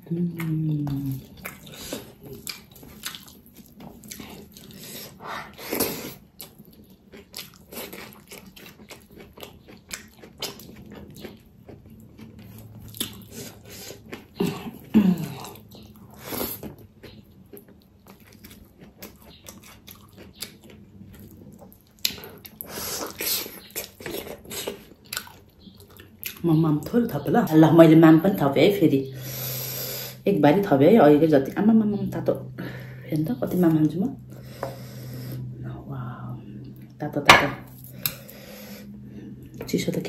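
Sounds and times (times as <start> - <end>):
wet chewing and mouth clicks: 0.4 - 26.8.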